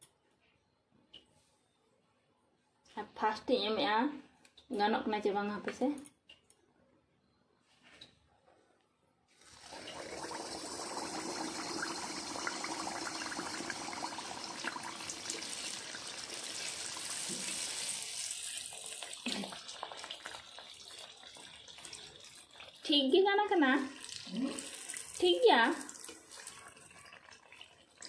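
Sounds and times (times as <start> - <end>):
water running: 9.4 - 28.0.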